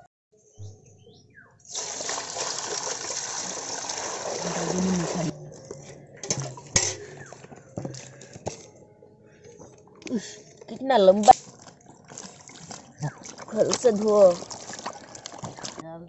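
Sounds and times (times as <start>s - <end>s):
water pouring into metal basin: 1.7s - 5.4s, 6.2s - 7.1s, 11.4s - 15.8s
vegetables splashing into water: 1.8s - 5.3s, 11.3s - 15.8s.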